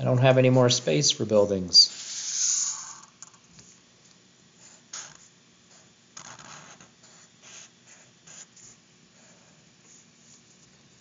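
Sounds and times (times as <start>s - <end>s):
marker scratching on paper: 1.9s - 3.8s, 4.6s - 10.5s.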